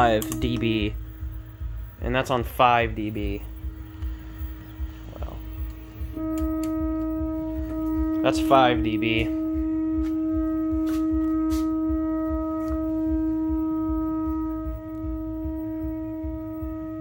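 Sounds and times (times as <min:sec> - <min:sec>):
low fluttering rumble: 0:00.0 - 0:17.0
steady test tone from speaker: 0:00.0 - 0:17.0.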